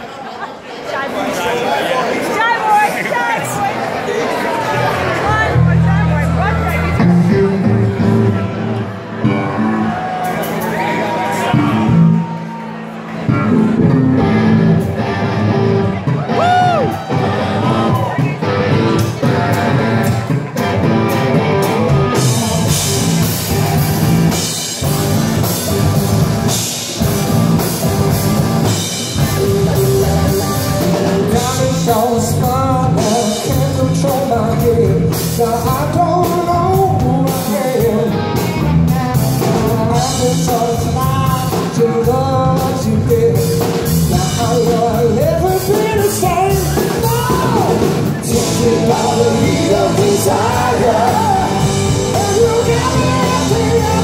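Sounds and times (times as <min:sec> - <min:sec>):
electric guitar: 0:04.8 - 0:54.0
electric bass: 0:04.9 - 0:54.0
drum kit: 0:13.3 - 0:54.0
lead vocal singing: 0:21.7 - 0:23.4, 0:30.3 - 0:54.0.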